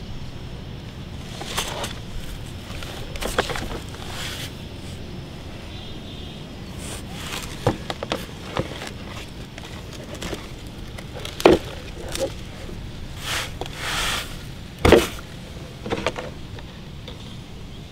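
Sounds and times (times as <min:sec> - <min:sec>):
soil sliding rustle: 0:01.1 - 0:05.6, 0:06.6 - 0:16.7
plastic toy truck knocks: 0:14.8 - 0:15.2.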